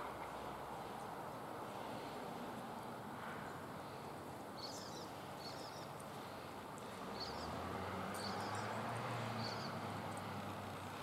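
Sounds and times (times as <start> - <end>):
small bird chirping: 4.6 - 6.1, 6.8 - 10.3.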